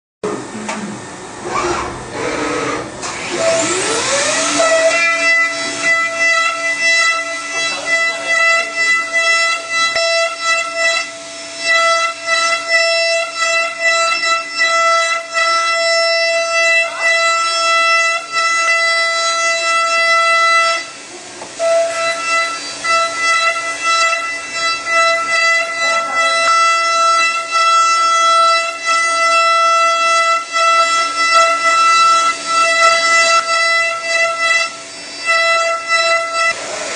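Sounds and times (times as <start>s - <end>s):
milling machine high-pitched whine: 0.2s - 36.9s.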